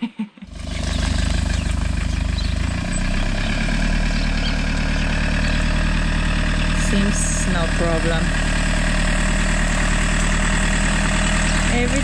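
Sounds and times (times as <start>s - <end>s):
motorhome engine idling: 0.5s - 12.0s.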